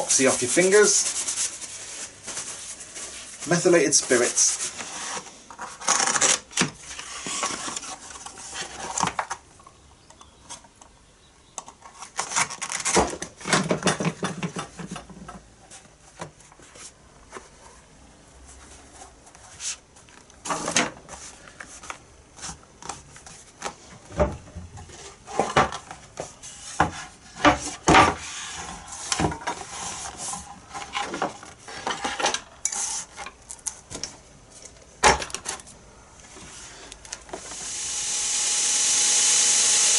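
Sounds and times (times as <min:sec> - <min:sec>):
scraping and rubbing: 0:00.0 - 0:05.9.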